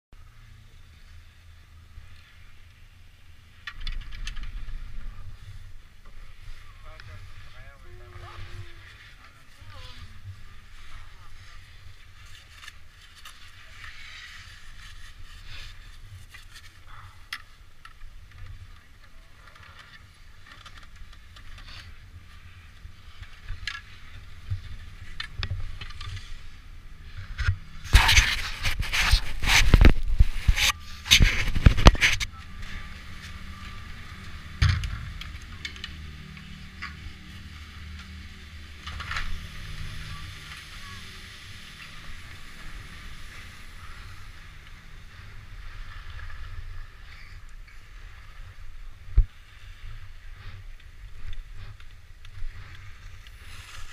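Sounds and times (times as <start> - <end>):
chairlift low rumble: 0.2 - 53.9
wind noise: 22.4 - 35.5.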